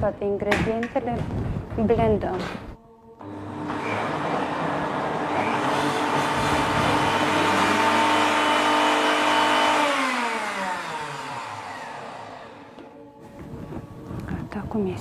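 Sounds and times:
blender motor whine: 0:03.2 - 0:13.0.

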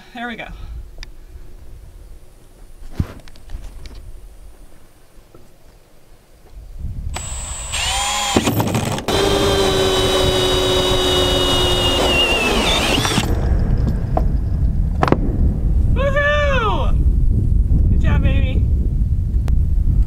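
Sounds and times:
cordless drill cutting plastic: 0:07.2 - 0:13.4.

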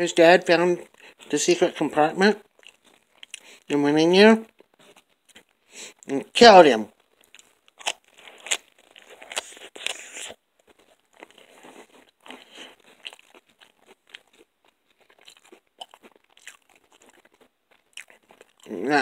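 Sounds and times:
chewing and crunching crust: 0:00.1 - 0:06.2, 0:06.8 - 0:19.0.

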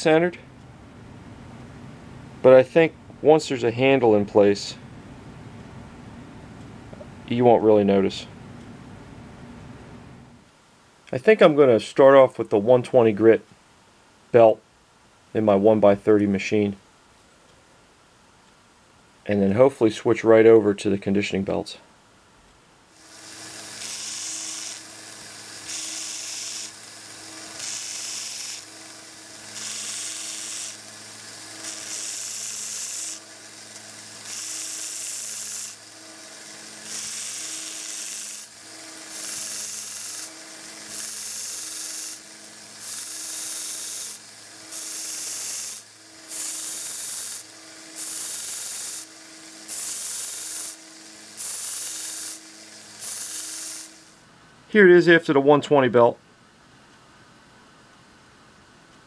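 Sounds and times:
abrasive grinding hiss: 0:22.9 - 0:54.3
belt sander motor hum: 0:23.0 - 0:54.2.

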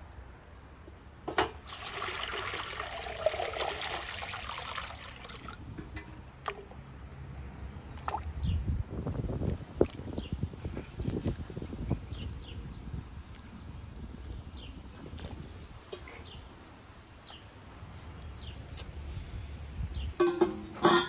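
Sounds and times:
water pouring into iron cauldron: 0:01.7 - 0:05.6.

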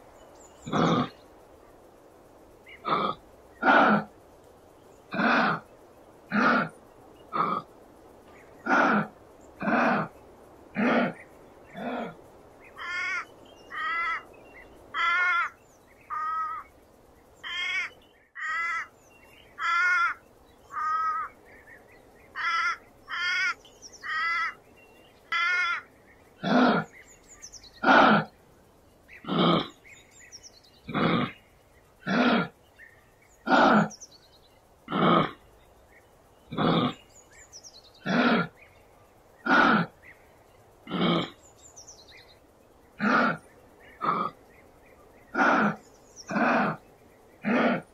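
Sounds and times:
harsh animal calls: 0:00.6 - 0:01.2, 0:02.7 - 0:04.2, 0:05.1 - 0:05.7, 0:06.3 - 0:07.8, 0:08.6 - 0:14.3, 0:14.9 - 0:16.7, 0:17.4 - 0:18.9, 0:19.6 - 0:21.4, 0:22.3 - 0:24.6, 0:25.3 - 0:27.1, 0:27.8 - 0:28.4, 0:29.1 - 0:29.9, 0:30.8 - 0:32.6, 0:33.4 - 0:34.0, 0:34.8 - 0:35.6, 0:36.5 - 0:37.1, 0:38.0 - 0:38.6, 0:39.4 - 0:40.0, 0:40.8 - 0:41.4, 0:42.9 - 0:44.4, 0:45.3 - 0:46.8, 0:47.4 - 0:47.9.

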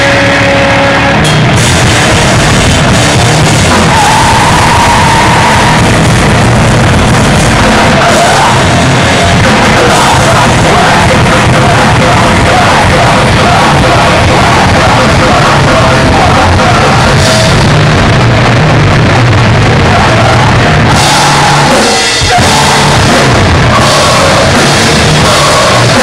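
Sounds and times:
distorted electric guitar: 0:00.0 - 0:26.0
drum kit: 0:00.0 - 0:26.0
yelled vocals: 0:00.0 - 0:26.0.

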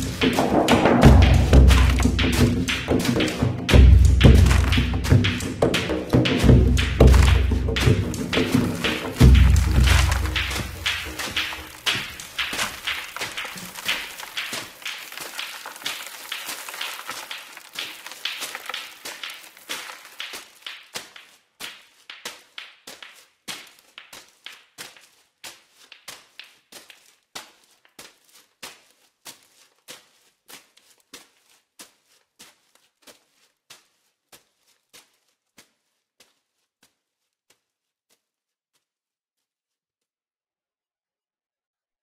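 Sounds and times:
sharp percussive taps: 0:00.0 - 0:23.2.

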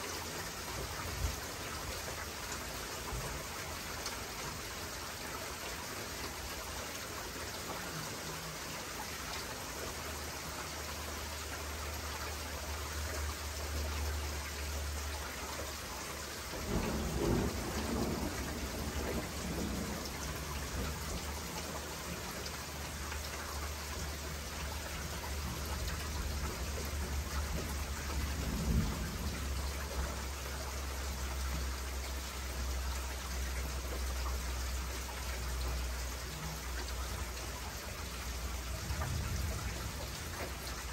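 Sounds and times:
heavy rain pouring: 0:00.0 - 0:40.9
thunder rumbling: 0:16.5 - 0:21.5, 0:26.9 - 0:30.2, 0:38.7 - 0:40.7.

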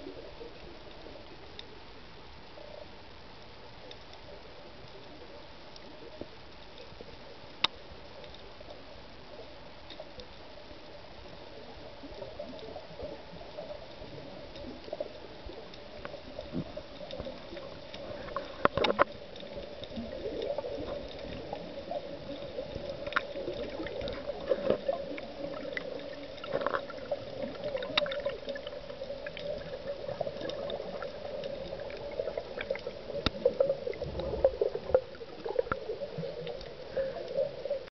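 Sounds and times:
underwater low hum: 0:00.0 - 0:37.9
sharp clicks and crackles: 0:00.1 - 0:37.9
gurgling bubbles: 0:11.6 - 0:37.9.

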